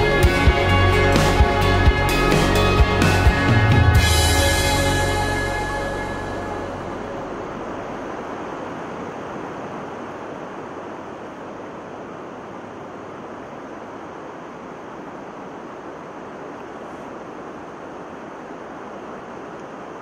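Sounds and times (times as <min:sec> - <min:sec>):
music: 0:00.0 - 0:07.8
river water flowing: 0:00.0 - 0:20.0.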